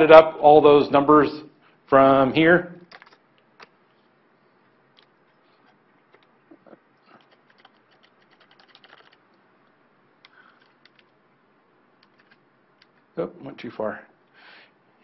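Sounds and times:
keyboard keys tapping: 2.9 - 3.7, 6.1 - 9.2, 10.2 - 11.1.

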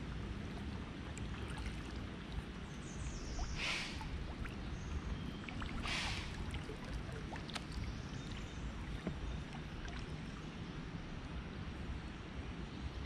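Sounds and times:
water lapping against kayak: 0.0 - 11.4
deer alarm snort: 5.8 - 6.3.

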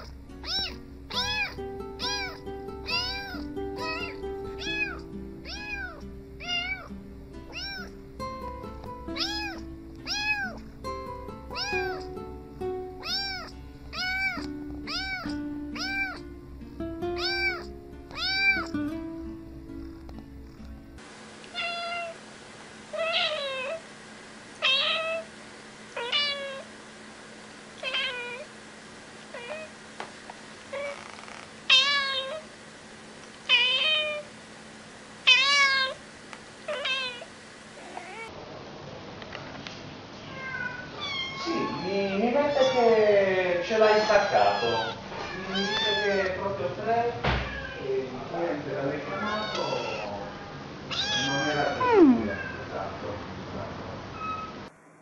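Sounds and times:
adult cat meowing: 0.0 - 6.9, 7.5 - 8.0, 9.2 - 10.6, 11.5 - 12.1, 13.0 - 16.2, 17.2 - 18.8, 21.5 - 22.2, 22.9 - 23.8, 24.6 - 25.3, 26.0 - 26.7, 27.8 - 28.5, 29.3 - 29.7, 30.7 - 32.5, 33.5 - 34.3, 35.3 - 36.0, 36.7 - 38.3, 40.2 - 43.0, 43.8 - 46.3, 47.3 - 47.9, 48.9 - 52.7
kitten meowing: 0.0 - 6.9, 7.5 - 8.0, 9.2 - 10.6, 11.5 - 12.2, 13.0 - 16.2, 17.2 - 18.8, 21.5 - 22.2, 23.0 - 23.8, 24.6 - 25.3, 26.0 - 26.7, 27.8 - 28.5, 29.4 - 29.7, 30.7 - 32.5, 33.5 - 34.3, 35.3 - 36.0, 36.7 - 38.3, 40.3 - 43.0, 43.8 - 46.4, 47.3 - 47.9, 49.0 - 50.3, 50.9 - 52.6
background music: 0.0 - 21.0.

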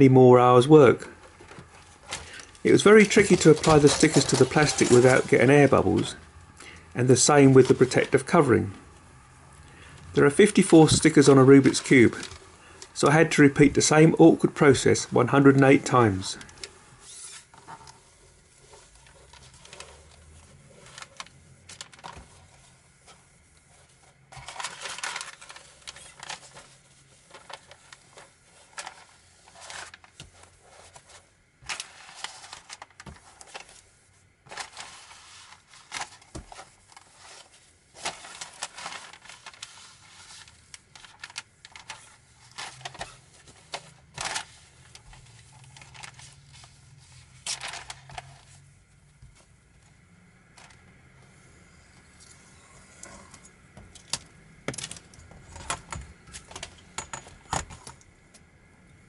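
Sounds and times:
vinyl sheet rustling and crinkling: 0.5 - 51.2.

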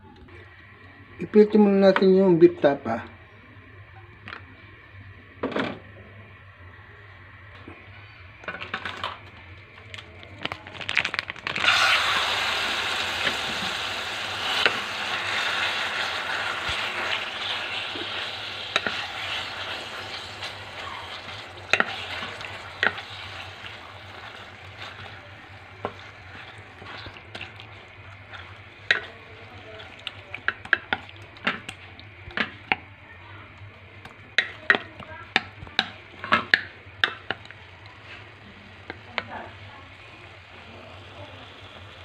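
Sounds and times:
meat sizzling in hot oil: 10.9 - 32.9, 34.0 - 42.0.

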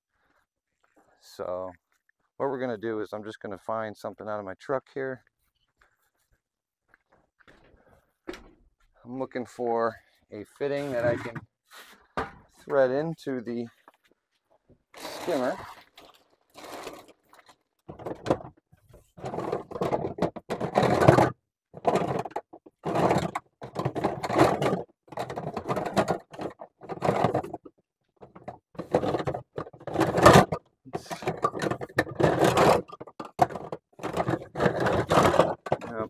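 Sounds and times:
parts rattling and scraping: 10.4 - 13.0, 14.8 - 36.0.

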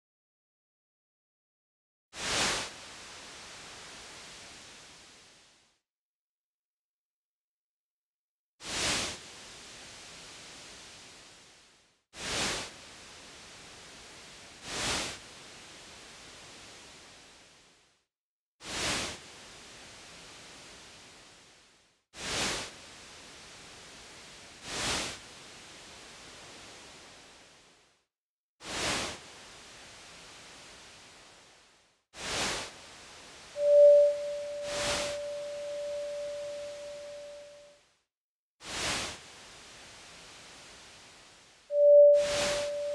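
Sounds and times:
short swooshes of noise: 2.2 - 5.4, 33.5 - 37.7, 41.7 - 42.9
soft hiss: 2.3 - 5.8, 9.0 - 18.0, 19.2 - 28.0, 29.1 - 37.8, 38.9 - 42.9
electronic noise hiss: 33.5 - 37.7, 41.7 - 42.9
steady sine tone: 33.6 - 37.8, 41.7 - 42.9.

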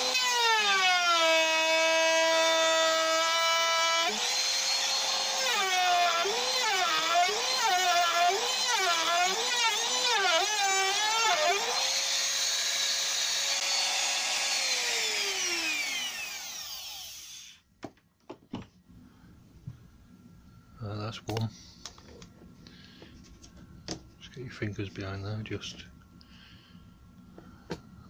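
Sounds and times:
trim router motor whine: 0.0 - 17.6.

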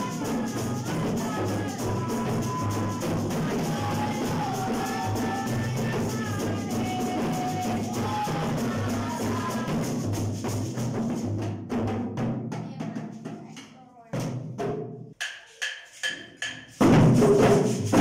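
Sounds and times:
voices singing long notes: 0.0 - 9.8
hand drums in a fast rhythm: 0.0 - 18.0.

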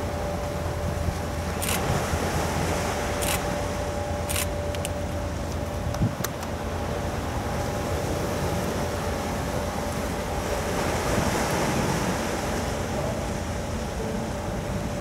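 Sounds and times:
ship engines rumbling: 0.0 - 15.0
wind noise on microphone: 5.7 - 6.5.

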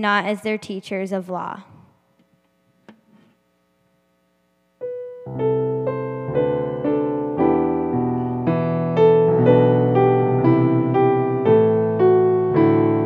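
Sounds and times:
electric keyboard piano chords: 4.8 - 13.0.

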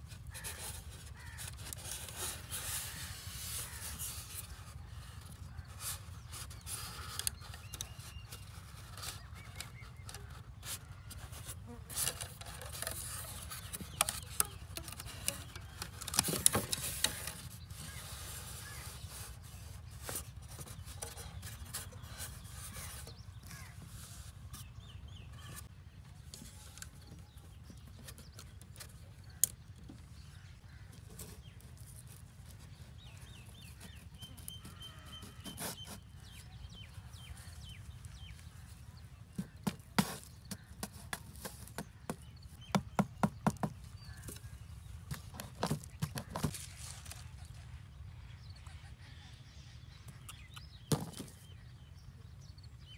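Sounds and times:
rustling: 44.1 - 48.0.

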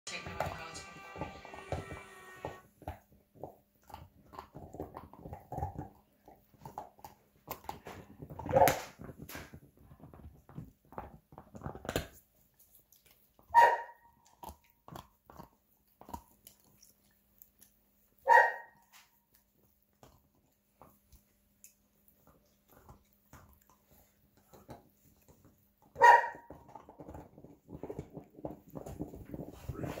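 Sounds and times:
dogs gnawing on bones: 0.1 - 30.0
dog barks: 13.5 - 14.1, 18.2 - 18.8, 26.0 - 26.5.

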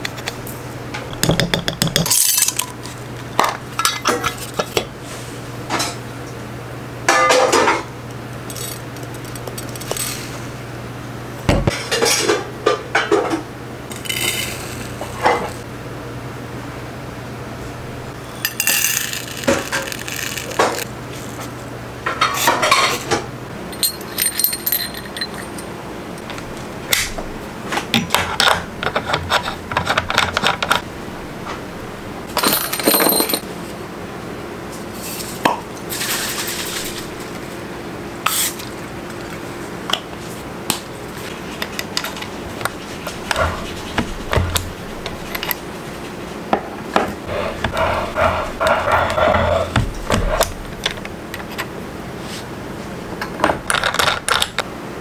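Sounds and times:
glass jars and metal clinking: 18.3 - 20.9, 23.7 - 25.7, 32.4 - 33.4.

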